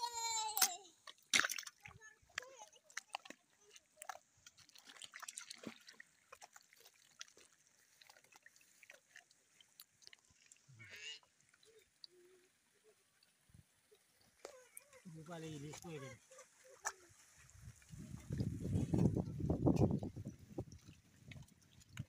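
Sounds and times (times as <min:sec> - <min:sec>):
hands splashing in mud and water: 0:00.5 - 0:10.6.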